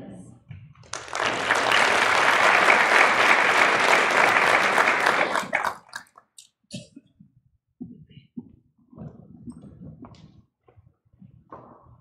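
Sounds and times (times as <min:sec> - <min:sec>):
audience applauding: 0:00.8 - 0:06.2.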